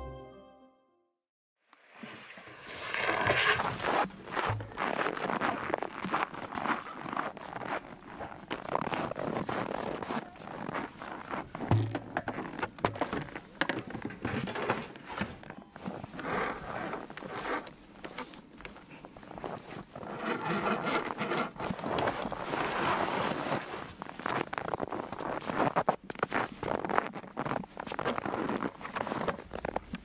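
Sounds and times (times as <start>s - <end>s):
objects scraping on sled: 1.9s - 13.2s, 13.8s - 18.4s, 19.3s - 29.8s
boots tramping through snow: 3.6s - 11.6s.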